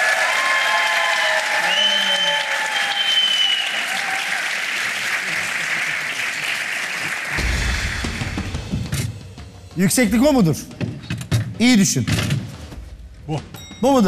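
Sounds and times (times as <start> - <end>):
people cheering: 0.0 - 8.6
audience applauding: 0.0 - 8.8.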